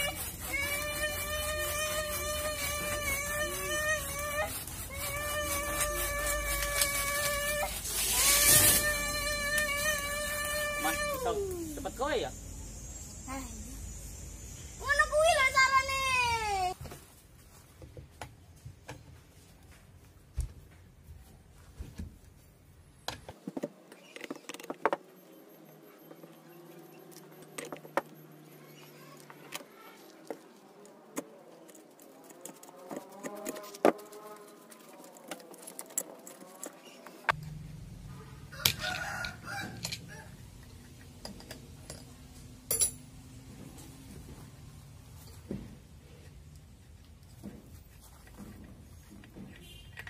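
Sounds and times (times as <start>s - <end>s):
rooster crowing: 38.4s - 40.5s
wrench clinking against metal: 42.7s - 43.1s.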